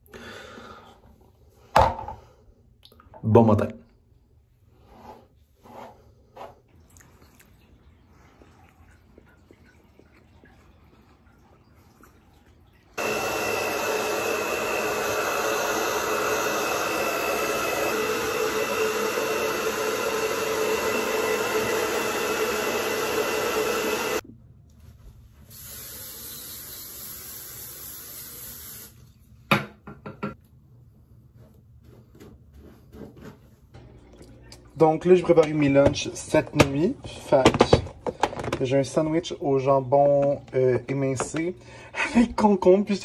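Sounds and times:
hair dryer blowing with whine: 13.0s - 24.2s.

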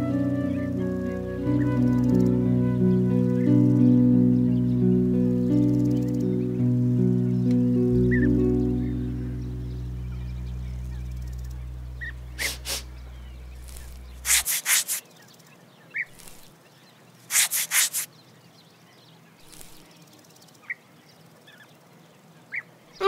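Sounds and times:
held music chord: 0.0s - 14.3s
small high peeps: 10.2s - 15.1s, 16.0s - 16.5s, 17.3s - 18.1s, 19.4s - 19.9s
grasshopper rasping stridulation: 10.5s - 16.6s, 17.2s - 18.1s, 19.4s - 20.7s.

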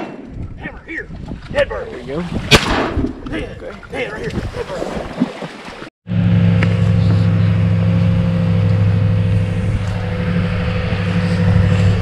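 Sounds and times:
vehicle engine idling: 6.1s - 12.0s.

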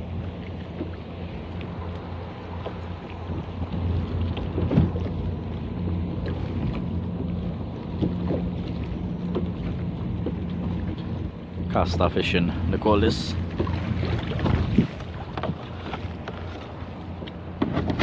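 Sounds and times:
water splashes: 0.0s - 18.0s
waves lapping against a kayak: 0.0s - 18.0s
wind buffeting microphone: 2.5s - 16.3s.

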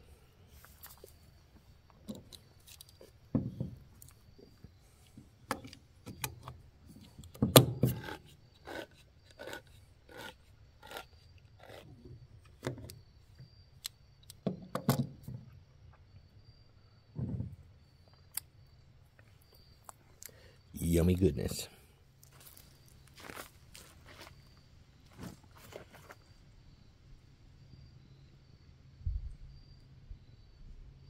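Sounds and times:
can opener clicking and scraping: 5.6s - 13.0s.

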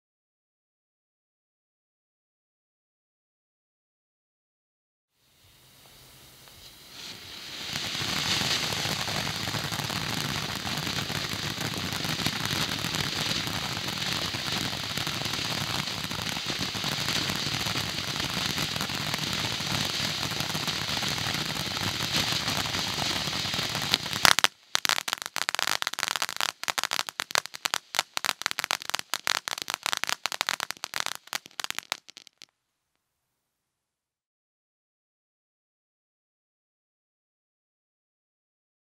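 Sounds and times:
firework fountain hissing: 5.2s - 32.5s
firework crackling pops: 5.8s - 32.6s.

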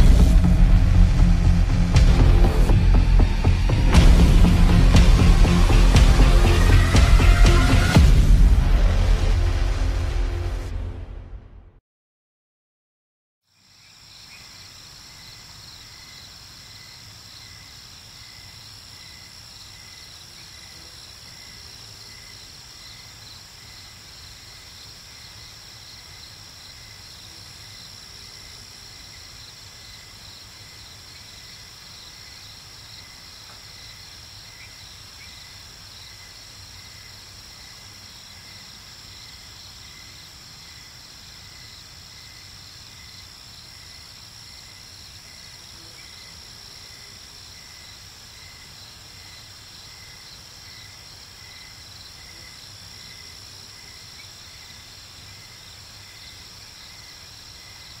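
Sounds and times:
crickets trilling: 13.5s - 58.0s
pulsing cricket chirps: 13.5s - 58.0s.

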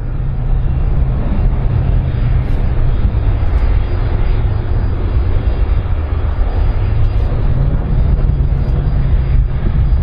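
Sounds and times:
jet engines roaring: 0.0s - 10.0s.

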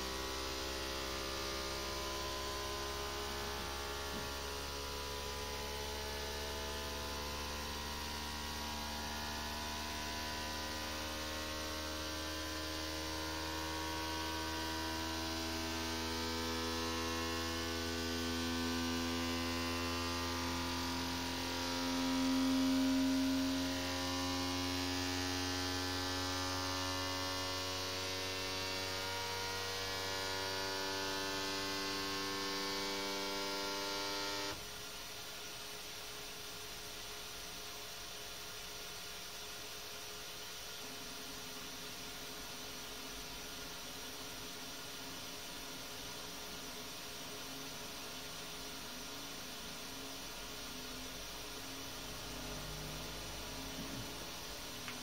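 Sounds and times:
steady low hum: 39.4s - 55.0s.

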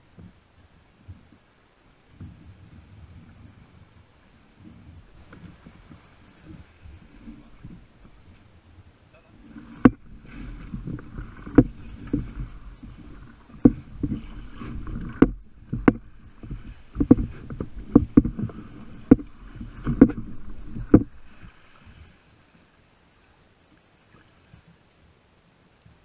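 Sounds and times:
kayak hull grinding over pebbles: 2.2s - 22.1s
sharp knocks: 13.5s - 21.4s.

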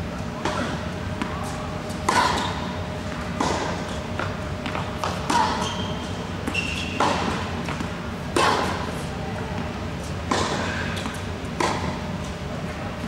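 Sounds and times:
shoes squeaking on court: 1.4s - 7.9s
tennis ball hits and bounces: 2.1s - 8.7s, 10.3s - 12.0s.

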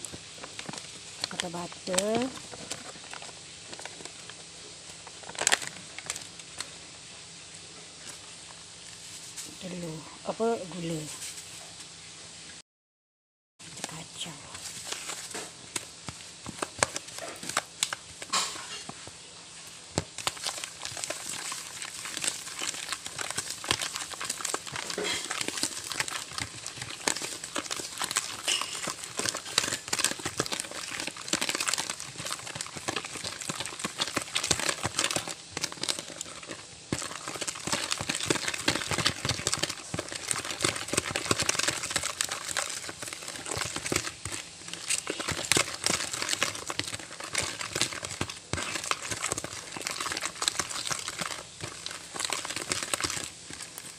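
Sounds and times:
wooden spoon scraping a plastic bowl: 20.2s - 53.9s.

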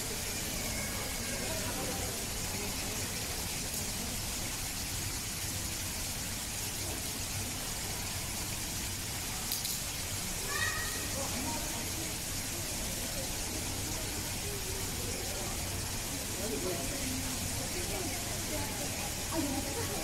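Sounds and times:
faint indistinct voices: 0.0s - 20.0s
steady background hiss: 0.0s - 20.0s.

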